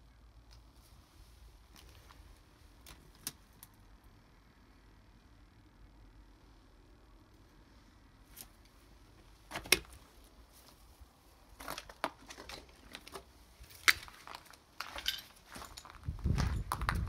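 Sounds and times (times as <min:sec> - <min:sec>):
footsteps crunching on broken glass: 0:11.6 - 0:17.0.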